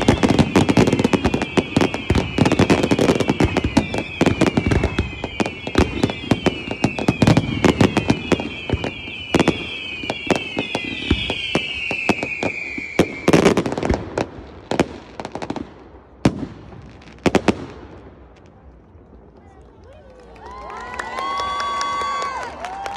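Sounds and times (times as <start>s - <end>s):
fireworks whistles falling in pitch: 0.0s - 14.0s
fireworks bangs and crackles: 0.0s - 20.6s.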